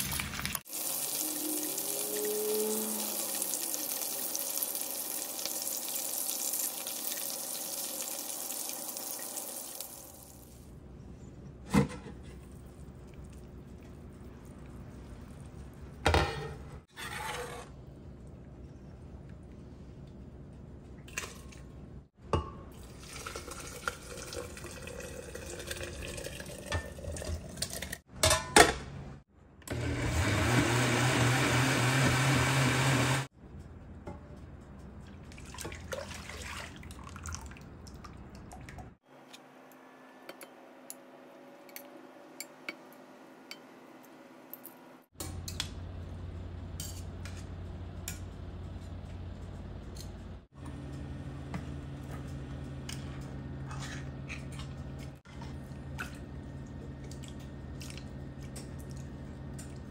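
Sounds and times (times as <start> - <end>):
sauce pouring into a pan: 0.6 - 10.6
blender running: 0.7 - 4.3, 29.7 - 33.3.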